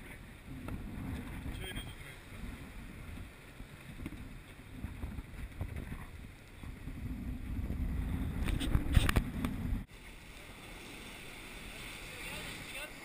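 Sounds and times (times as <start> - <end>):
wind buffeting microphone: 0.0 - 9.9
sea rushing past hull: 0.0 - 13.0.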